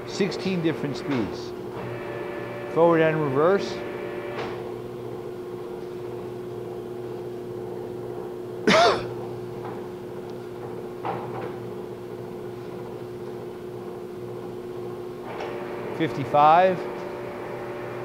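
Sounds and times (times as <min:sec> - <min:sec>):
lathe running with steady hum: 0:00.0 - 0:18.0
person coughing: 0:08.7 - 0:09.2.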